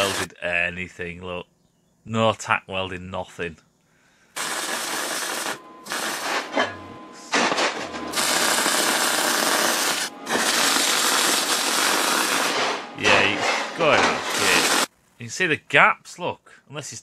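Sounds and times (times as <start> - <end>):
welder arc crackling and hissing: 0.0 - 0.4, 4.4 - 6.6, 7.2 - 15.5.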